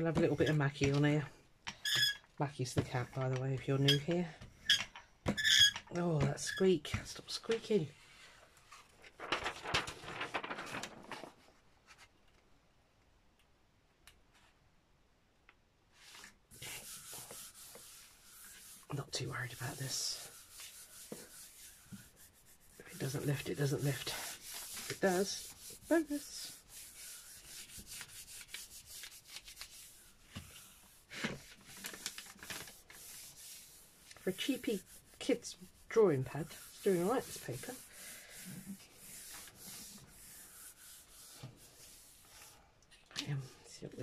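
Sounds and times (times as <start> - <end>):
paper rustling: 7.4 - 12.2, 16.0 - 42.6
hands rubbing paper: 8.7 - 11.4, 16.0 - 42.6.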